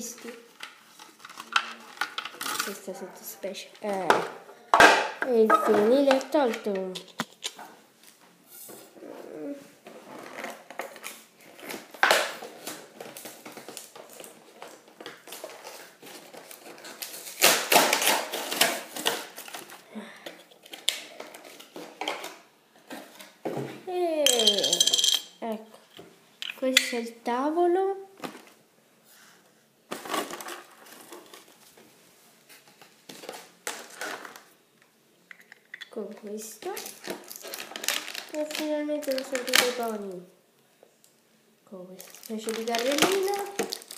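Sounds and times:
toy packaging crinkling: 36.6s - 40.1s, 42.0s - 43.9s.

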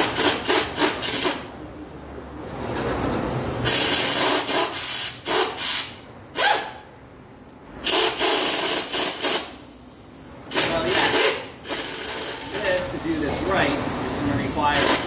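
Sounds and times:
ratchet rasping: 0.0s - 1.4s, 7.8s - 9.5s, 10.5s - 12.9s, 14.7s - 15.0s.

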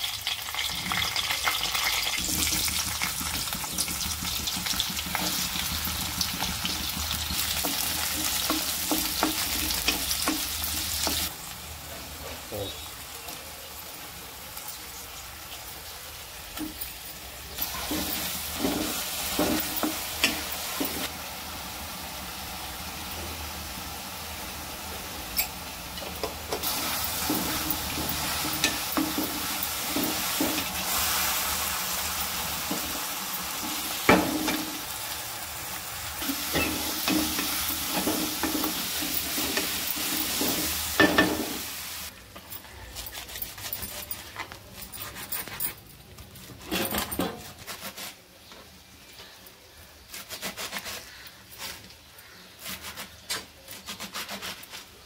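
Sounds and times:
food sizzling in pan: 0.0s - 42.2s.

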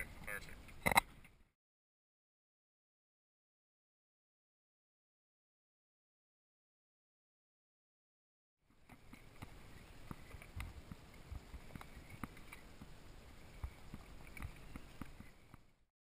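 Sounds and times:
wind: 0.0s - 1.6s, 8.6s - 15.9s
sharp knocks and clicks: 0.7s - 1.4s
sea noise: 8.7s - 15.8s.

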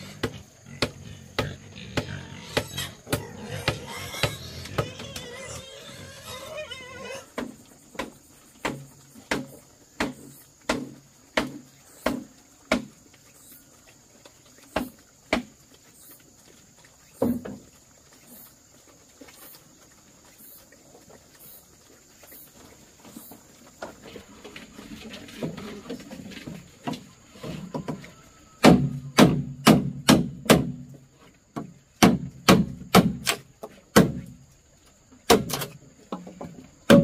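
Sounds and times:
sharp knocks on wood: 28.6s - 30.8s, 31.6s - 34.3s.

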